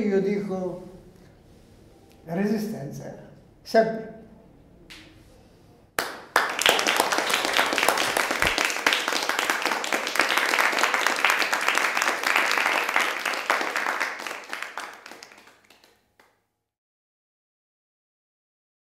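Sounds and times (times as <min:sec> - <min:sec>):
applause: 0:06.0 - 0:16.4.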